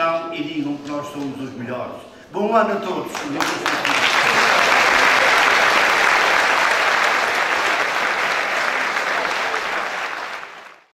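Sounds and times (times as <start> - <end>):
audience applauding: 3.1 - 10.9.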